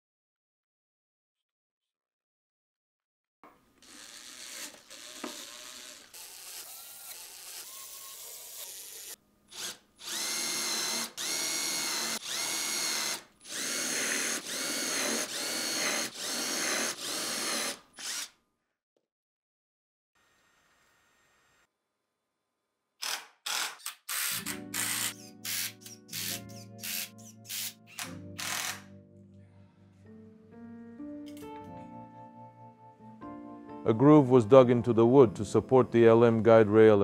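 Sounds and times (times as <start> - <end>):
impact driver bursts: 9.6 - 18.3, 23.0 - 28.9.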